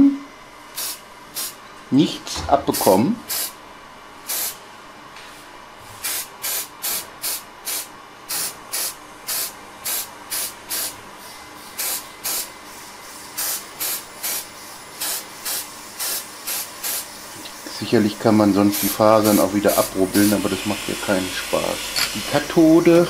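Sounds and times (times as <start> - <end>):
spray can hissing squirts: 13.4 - 17.7, 18.7 - 22.4.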